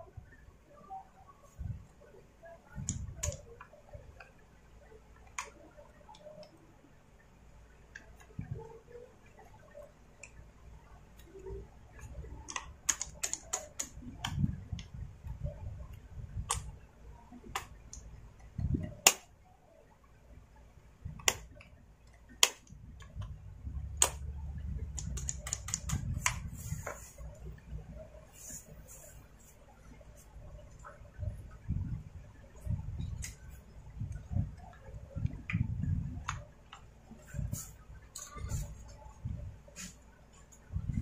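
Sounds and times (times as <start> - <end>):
plastic clicks and rattles: 24.9 - 26.4.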